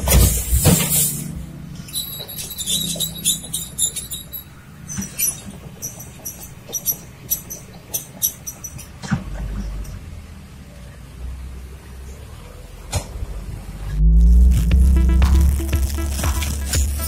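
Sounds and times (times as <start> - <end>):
steel tracks squeaking: 0.0 - 9.1
excavator engine running: 13.3 - 17.0.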